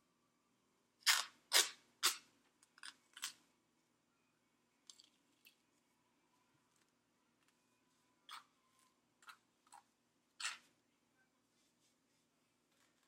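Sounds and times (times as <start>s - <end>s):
tape ripping off roll: 1.0s - 2.2s.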